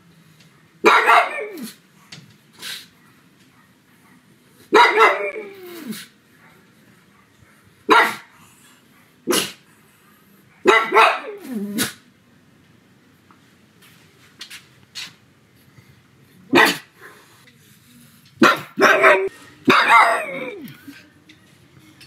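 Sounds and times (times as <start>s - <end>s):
dog barking: 0.8s - 1.8s, 3.5s - 5.5s, 7.9s - 8.3s, 10.6s - 12.0s, 16.5s - 16.9s, 18.4s - 20.6s.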